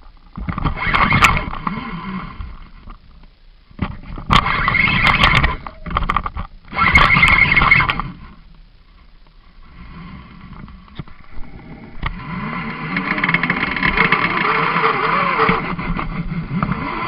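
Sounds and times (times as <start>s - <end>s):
fishing reel drag screaming: 6.7s - 8.2s, 11.3s - 15.8s.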